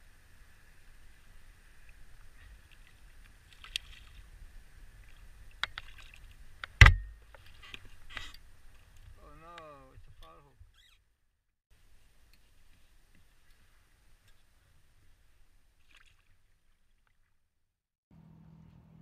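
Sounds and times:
loud thump against kayak: 6.8s - 7.2s.

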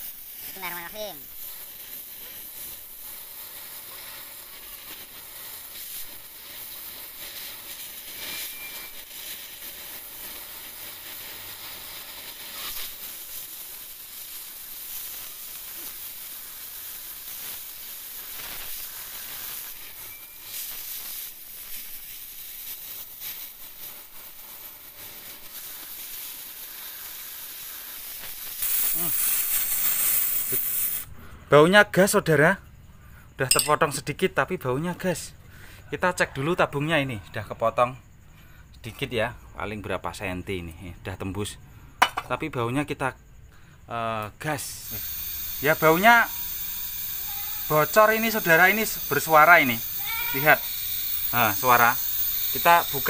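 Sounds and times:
cutting torch hissing: 0.0s - 32.2s, 43.4s - 53.0s.

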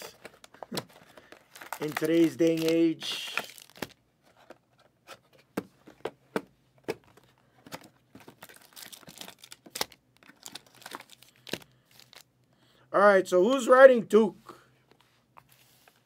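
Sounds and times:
foil packs crinkling: 0.0s - 4.0s, 7.8s - 12.3s
packs tearing: 0.0s - 4.0s, 8.3s - 12.3s.

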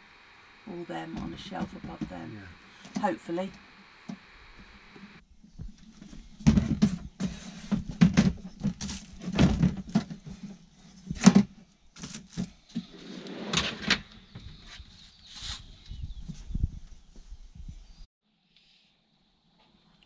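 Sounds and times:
plastic tubs knocking and scraping: 5.9s - 12.9s.

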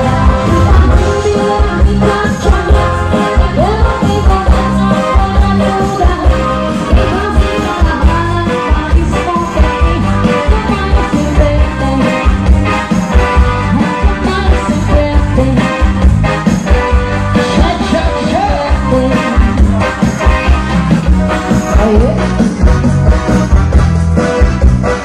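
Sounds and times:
person singing: 0.0s - 12.4s, 17.4s - 20.6s
live band cha-cha music: 0.0s - 25.0s.

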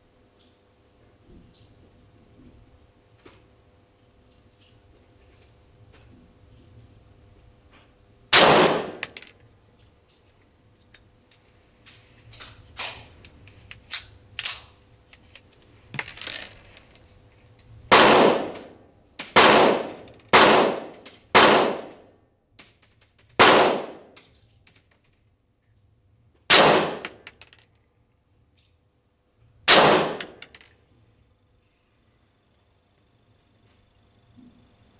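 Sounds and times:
pistol shots with echo: 8.3s - 9.1s, 17.9s - 18.7s, 19.4s - 21.9s, 23.4s - 24.1s, 26.5s - 27.2s, 29.7s - 30.4s.

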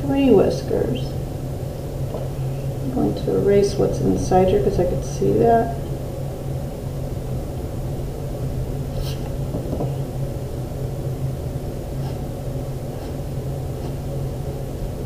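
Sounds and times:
steady low hum: 0.0s - 15.0s
pencil and eraser on paper: 12.9s - 13.2s.

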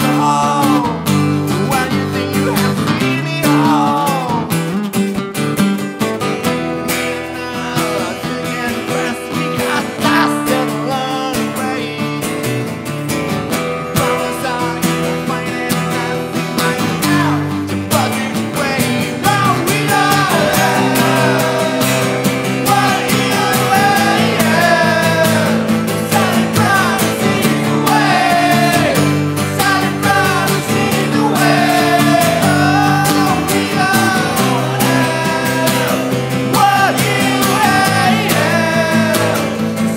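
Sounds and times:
group of voices singing: 0.0s - 1.0s, 14.0s - 39.9s
man singing lead vocal: 0.0s - 4.7s, 6.7s - 12.7s, 13.7s - 39.9s
acoustic guitars strummed: 0.0s - 39.9s.

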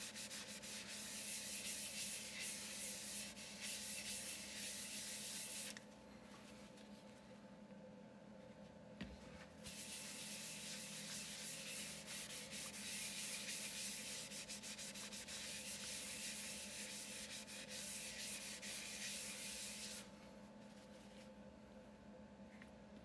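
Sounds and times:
paper towel rubbing spinning wood: 0.0s - 5.8s, 9.7s - 20.1s.

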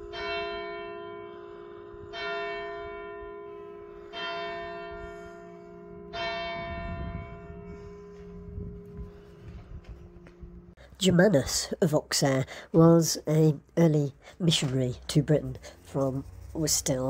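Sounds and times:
large church bell tolling: 0.0s - 10.7s.

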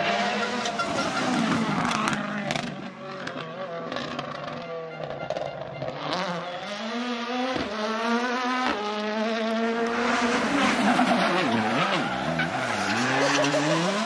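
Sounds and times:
rally car engine at high revs: 0.0s - 14.0s
rushing noise: 9.8s - 13.3s.

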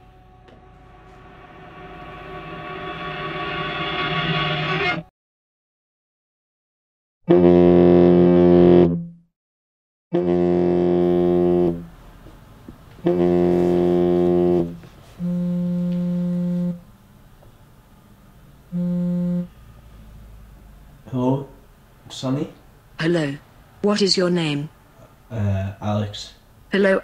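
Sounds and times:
mobile phone vibrating: 10.2s - 11.8s, 13.0s - 16.9s, 18.7s - 19.6s.

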